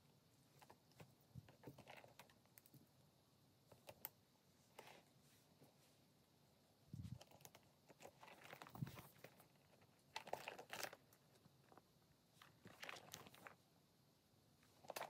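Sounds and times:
handbag clicks and rustles: 0:07.1 - 0:11.1, 0:12.5 - 0:13.6.

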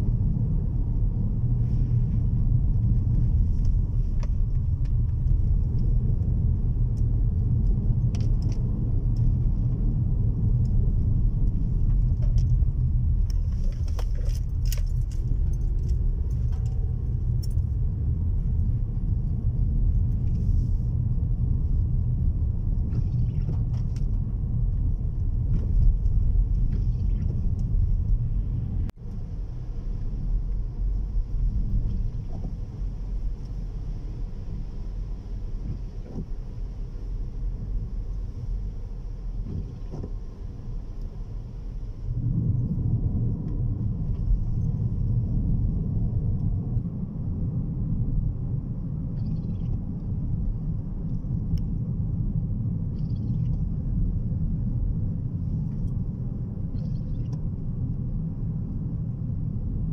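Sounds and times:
road and engine rumble in car: 0:00.0 - 0:59.9
light clicks and rattles: 0:11.4 - 0:17.8.

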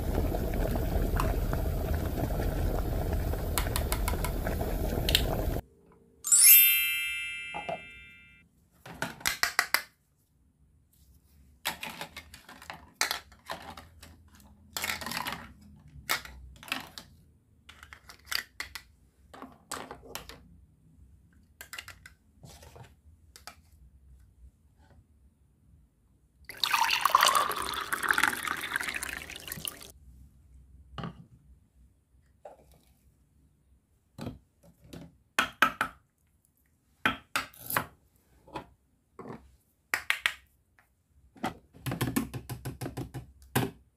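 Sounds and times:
plastic toy clicks and knocks: 0:09.0 - 0:09.9, 0:17.7 - 0:18.9, 0:21.6 - 0:22.2
running water: 0:26.5 - 0:29.9.

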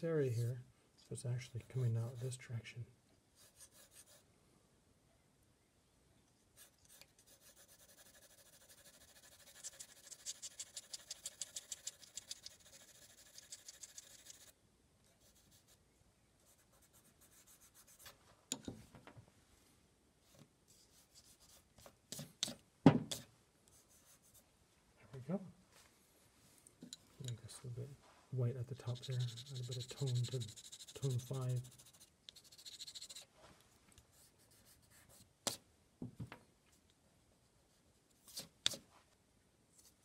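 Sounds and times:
pencil scratching on card: 0:01.4 - 0:02.4, 0:03.4 - 0:04.2, 0:06.6 - 0:14.5, 0:15.2 - 0:15.8, 0:16.5 - 0:18.1, 0:20.8 - 0:24.4, 0:28.8 - 0:33.3
soft rubs on drawing surface: 0:03.4 - 0:04.2, 0:06.6 - 0:14.5, 0:20.2 - 0:24.5, 0:27.9 - 0:35.3.

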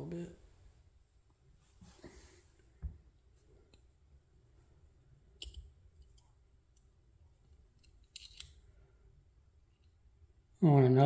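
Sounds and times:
small plastic parts clicking: 0:07.7 - 0:08.6.

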